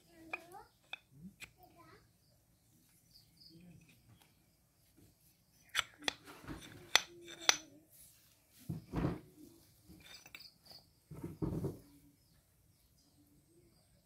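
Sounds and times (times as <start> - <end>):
metal pump parts clinking: 5.7 - 7.7, 9.9 - 10.7.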